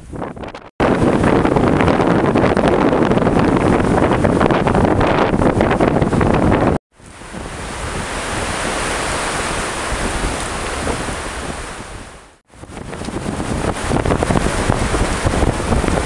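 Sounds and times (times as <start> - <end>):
wind buffeting microphone: 0.0 - 16.0
wind rushing through trees: 0.0 - 16.0.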